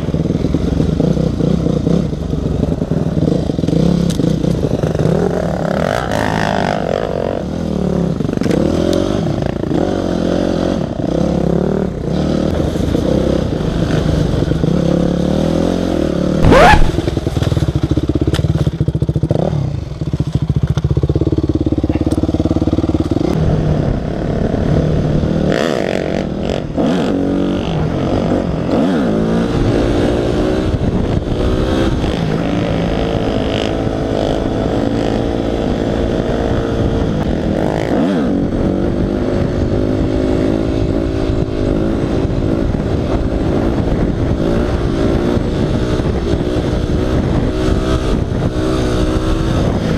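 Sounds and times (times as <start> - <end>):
dirt bike engine revving: 3.0 - 18.1.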